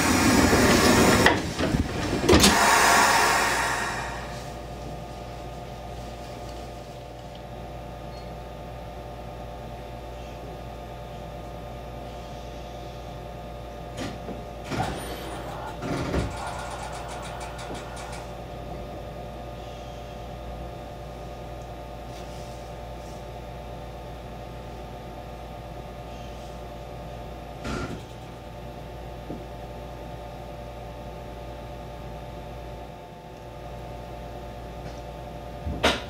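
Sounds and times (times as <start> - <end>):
electric train equipment humming: 0.0 - 22.0.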